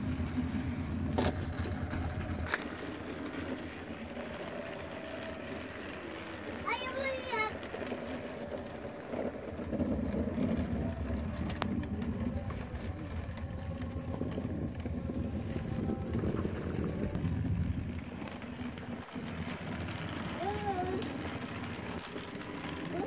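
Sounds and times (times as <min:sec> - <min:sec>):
model trains rumbling on track: 0:00.0 - 0:23.0.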